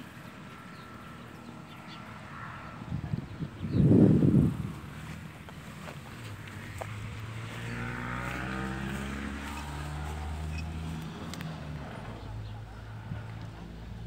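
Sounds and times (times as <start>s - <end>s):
vehicle engine running: 0.0s - 14.0s.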